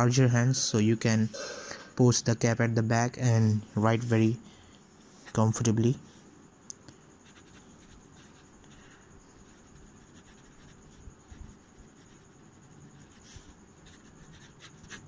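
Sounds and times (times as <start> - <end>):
pen nib scratching on paper: 7.2 - 15.0.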